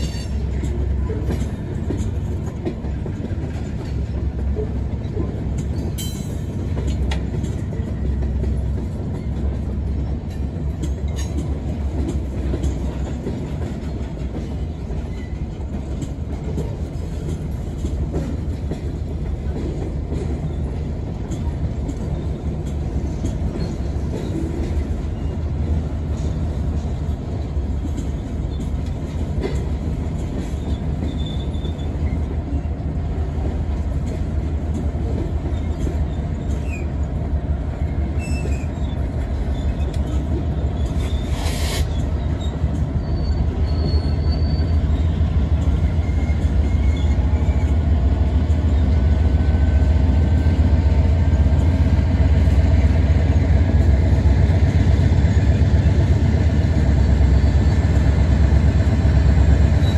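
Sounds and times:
diesel locomotive rumble: 0.0 - 59.9
freight train rolling: 0.0 - 59.9
faint wheel squeals: 38.2 - 45.2, 45.8 - 47.8.

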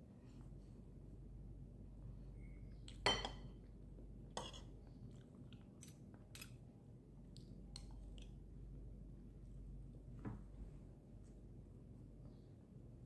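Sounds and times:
cutlery clinking on ceramic plate: 3.0 - 3.5
chewing: 4.8 - 6.6.

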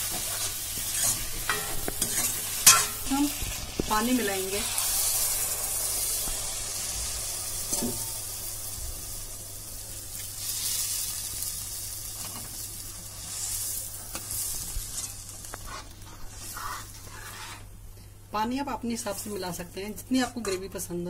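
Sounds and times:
food sizzling and hissing: 0.0 - 17.8
steel spoon stirring: 0.1 - 3.2.

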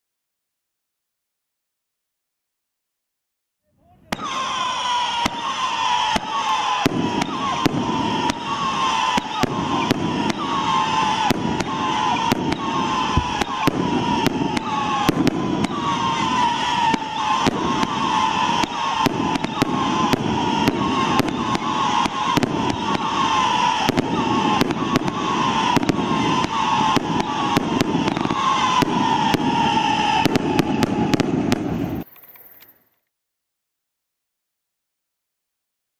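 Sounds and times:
firework whistles screaming: 3.8 - 32.9
firework bangs: 4.0 - 32.4.

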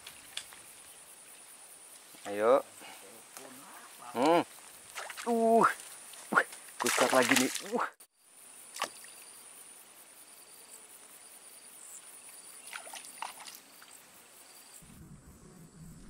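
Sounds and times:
low rumble: 14.8 - 16.0.

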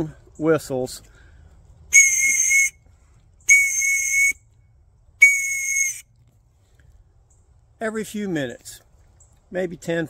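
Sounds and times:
high-pitched whistle blasts: 1.9 - 4.6, 5.2 - 6.1.

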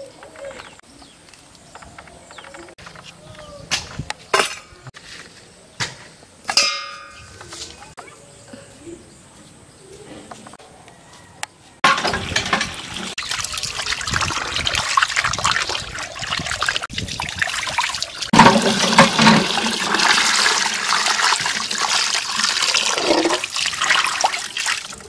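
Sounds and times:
water gushing into steel bowl: 11.9 - 25.0
water splashing onto concrete: 11.9 - 25.0.

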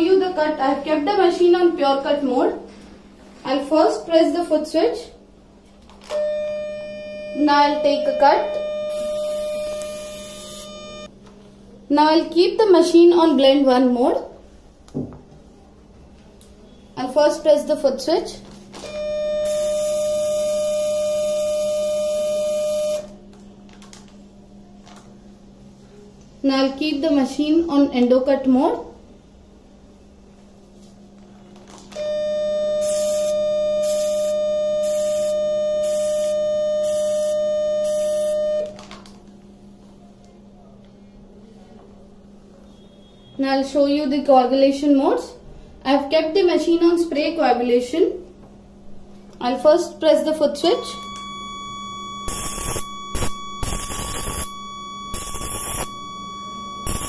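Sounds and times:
faint low mains hum: 0.0 - 57.0
electrosurgical unit activation tone: 6.0 - 11.2, 18.7 - 24.6, 31.9 - 39.8, 49.4 - 57.0
pulsed cutting sizzle: 8.6 - 11.1, 32.5 - 38.6, 51.1 - 57.0
hissing crackle of sparks: 32.8 - 38.4, 52.3 - 55.9.

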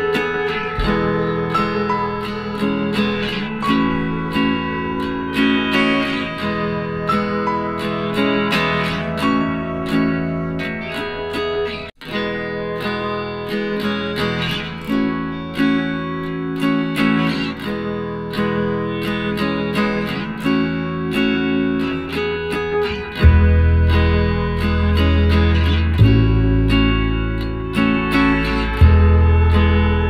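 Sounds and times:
acoustic guitar music: 0.0 - 30.0
deep low note: 0.8 - 2.9, 28.5 - 30.0.

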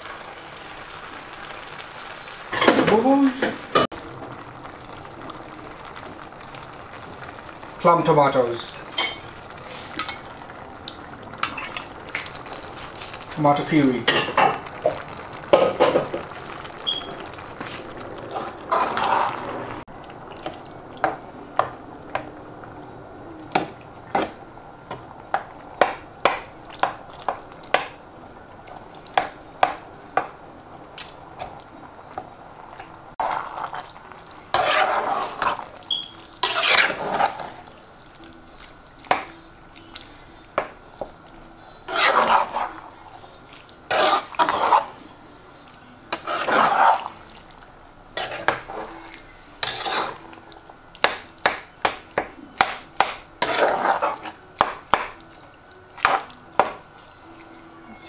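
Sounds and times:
wet scraping through sauce: 17.6 - 19.5, 41.9 - 42.8, 46.1 - 47.4, 49.6 - 50.2.

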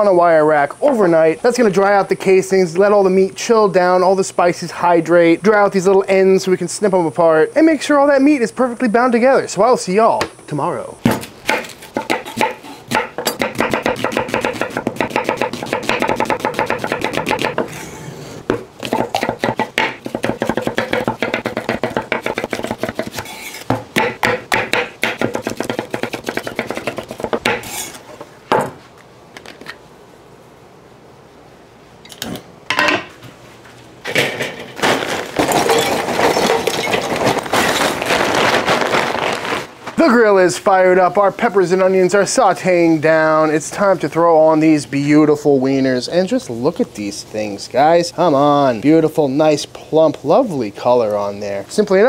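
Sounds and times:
knife slicing on wooden board: 18.5 - 23.8
charcoal clattering into grill: 34.0 - 38.3.

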